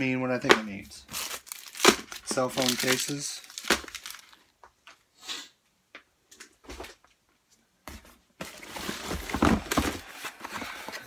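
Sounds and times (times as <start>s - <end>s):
cardboard and plastic rustling: 0.4s - 4.5s, 7.9s - 11.0s.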